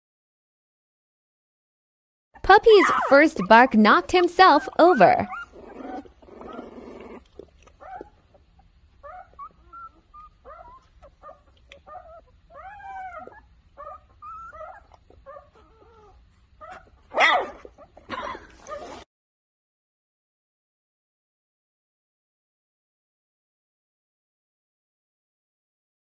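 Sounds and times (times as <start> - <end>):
puppy whimpering: 2.4 - 19.0
puppy barking: 2.7 - 3.6, 16.6 - 19.0.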